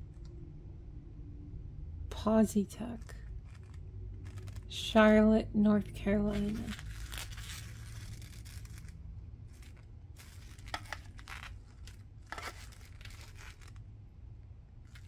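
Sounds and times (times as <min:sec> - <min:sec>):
steady low hum: 0:00.0 - 0:15.0
plastic handling rustles and clicks: 0:02.9 - 0:04.8, 0:06.1 - 0:13.8.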